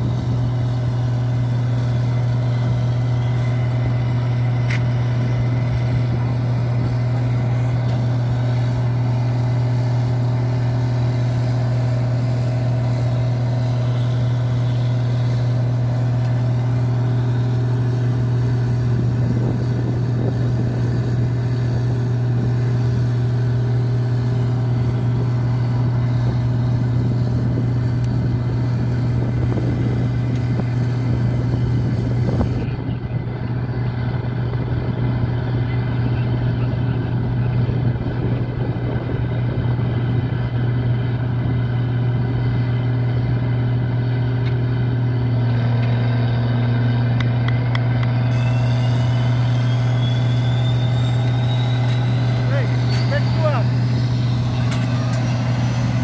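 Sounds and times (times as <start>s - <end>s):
engine drone: 0.0s - 56.0s.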